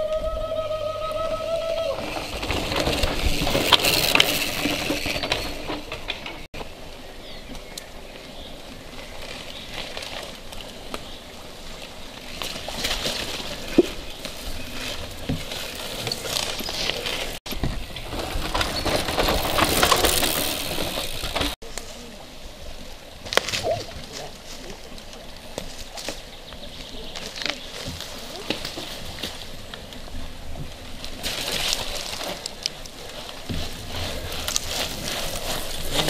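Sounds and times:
bike tyres crunching over dirt: 0.0 - 22.0, 23.2 - 36.0
bike chains clicking and rattling: 1.8 - 6.5, 12.3 - 21.6.

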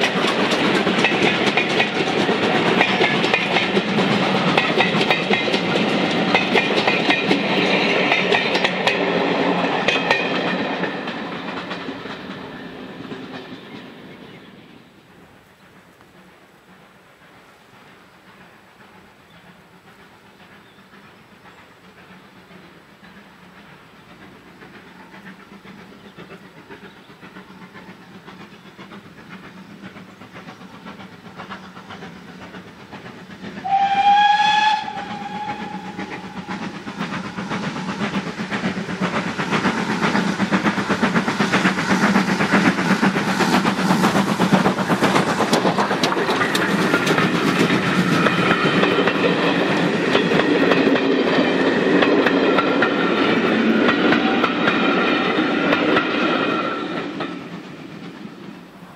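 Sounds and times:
steam locomotive exhaust beats: 0.0 - 58.9
train wheel clatter: 0.0 - 58.9
steam whistle: 33.6 - 36.7.

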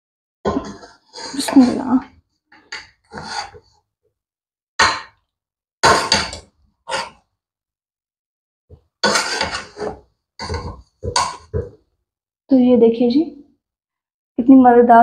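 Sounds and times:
metal spatula scraping a pot: 0.5 - 3.8, 5.8 - 7.3, 9.0 - 11.8.

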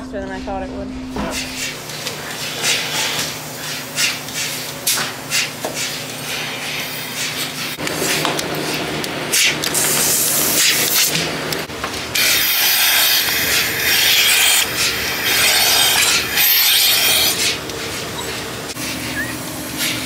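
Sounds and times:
milking unit hissing: 12.2 - 20.0.

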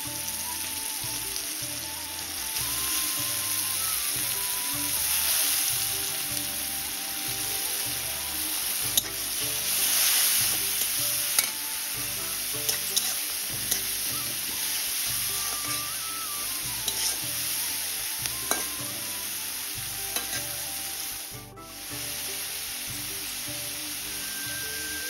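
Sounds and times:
onions sizzling in a wok: 0.0 - 25.0
metal spatula clacking on pan: 12.6 - 13.9.

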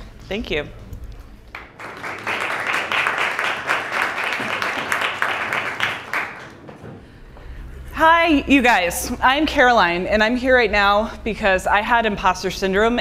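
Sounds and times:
small audience applauding: 1.5 - 7.0.

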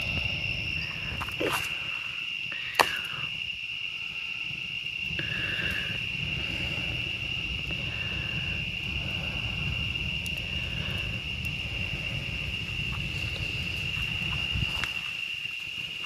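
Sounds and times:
crickets trilling: 0.0 - 16.0
low steady rumble: 6.0 - 14.8.

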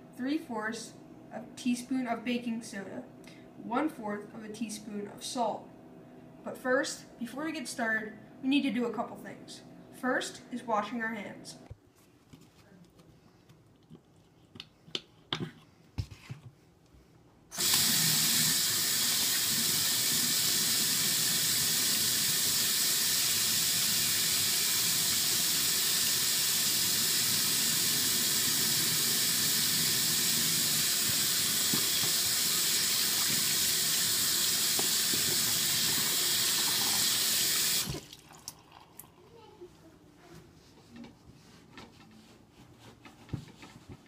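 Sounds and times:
faucet running into sink: 17.6 - 39.2.

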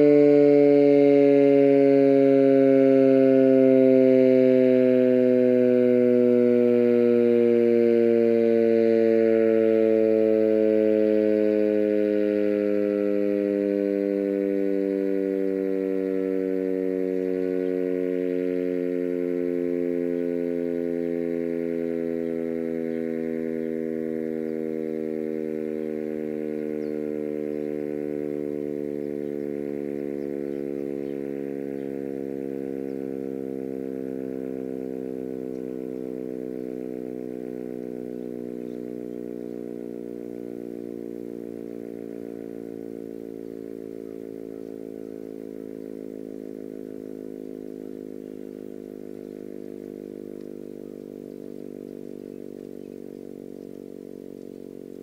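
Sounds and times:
warning siren winding down: 0.0 - 55.0.

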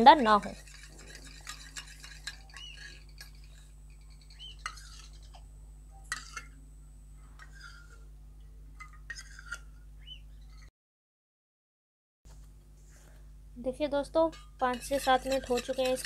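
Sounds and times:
metal spoon clinking in bowl: 0.4 - 3.6, 14.3 - 16.0.

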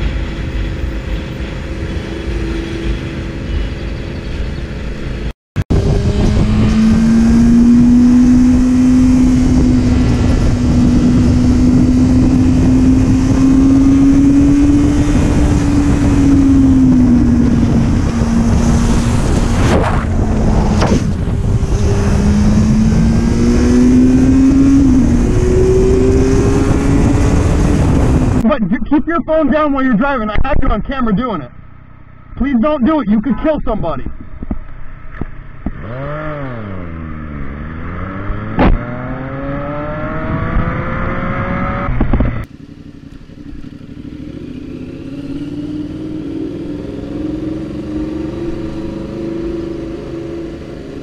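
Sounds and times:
motorcycle engine: 0.0 - 28.4, 34.1 - 51.0
wind noise: 0.0 - 28.8, 33.4 - 36.7, 38.0 - 42.5.

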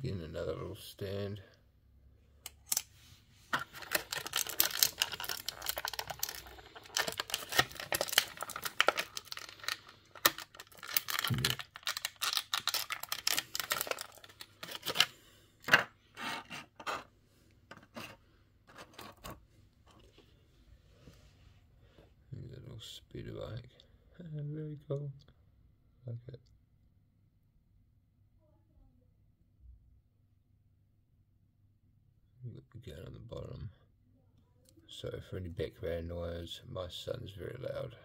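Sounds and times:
plastic packaging crinkling: 3.6 - 15.2.

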